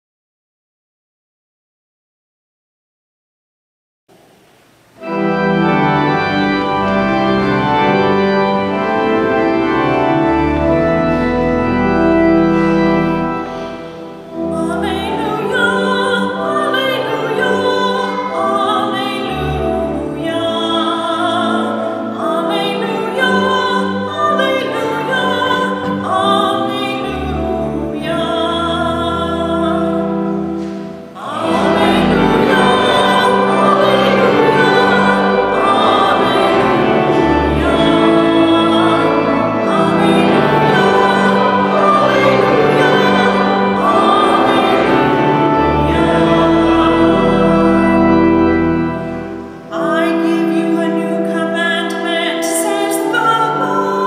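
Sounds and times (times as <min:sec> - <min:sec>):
church organ chords: 0:04.9 - 0:54.0
person singing with vibrato: 0:13.5 - 0:54.0.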